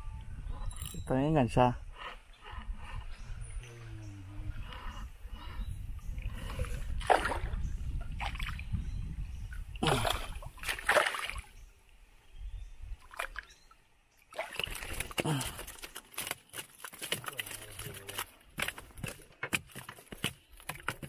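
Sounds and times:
low rumble of wind: 0.0 - 15.8
water splashing: 6.4 - 8.7, 9.7 - 11.5, 13.0 - 13.5, 14.2 - 19.0.

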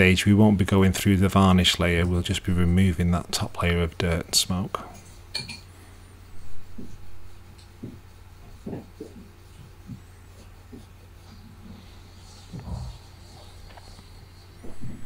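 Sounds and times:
low electrical hum: 0.0 - 15.0
cotton swab rubbing on painting: 6.2 - 15.0.

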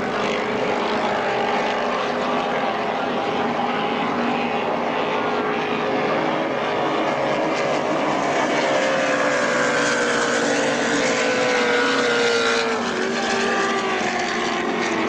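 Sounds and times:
powerboat engine speeding past: 0.0 - 15.0.

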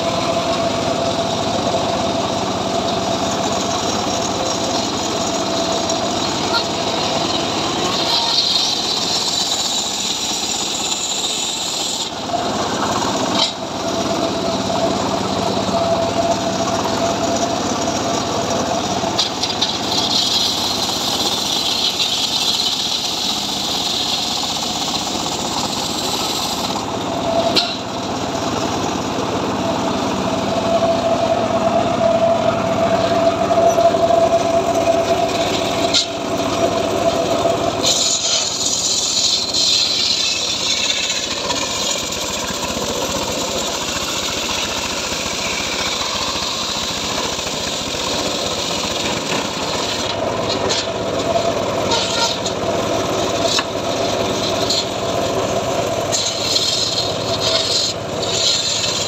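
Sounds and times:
circular saw blade ripping log: 37.8 - 42.6, 56.1 - 59.0.

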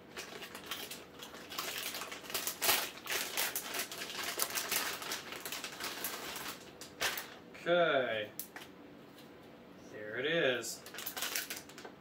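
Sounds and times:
plastic bag crinkling: 0.0 - 7.4, 10.8 - 12.0.

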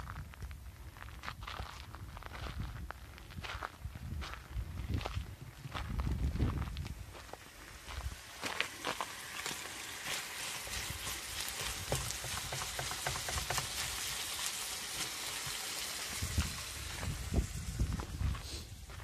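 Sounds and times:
meat sizzling in a frying pan: 9.0 - 18.8.

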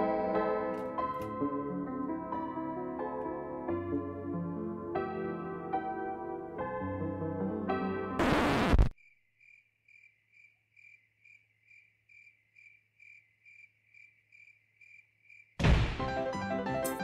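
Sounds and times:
piano music: 0.0 - 8.2, 16.0 - 17.0
cricket chirping: 9.0 - 15.6.

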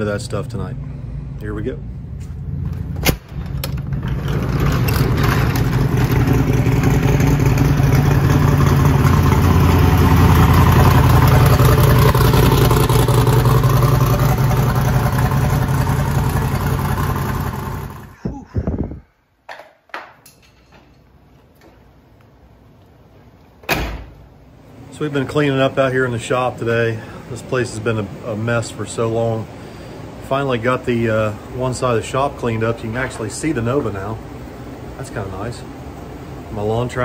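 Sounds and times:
pickup engine running: 2.1 - 18.2.

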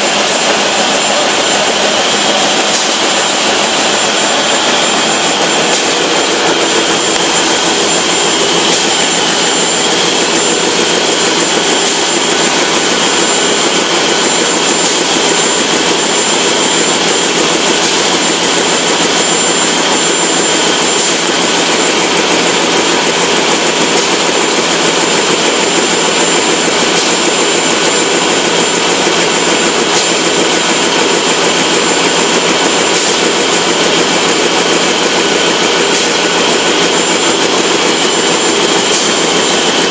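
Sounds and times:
loud machine din: 0.0 - 39.9
thin high machine whine: 0.0 - 39.9.

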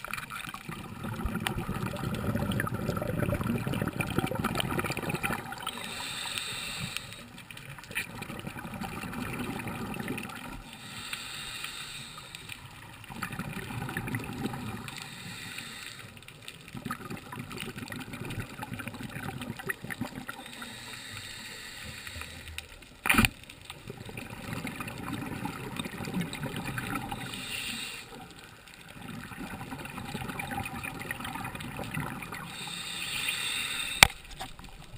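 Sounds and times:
exhaled air bubbling: 0.0 - 22.7, 23.7 - 34.9
regulator hiss on inhalation: 5.6 - 7.4, 10.6 - 12.7, 14.9 - 16.2, 20.4 - 22.7, 27.1 - 28.2, 32.4 - 34.3.

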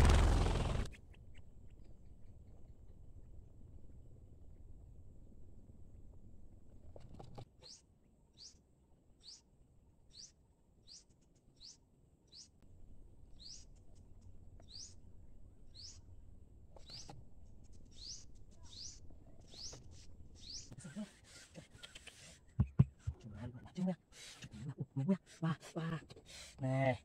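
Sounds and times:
low background rumble: 0.0 - 6.9
young quail peeping: 14.6 - 15.0, 16.8 - 22.5.

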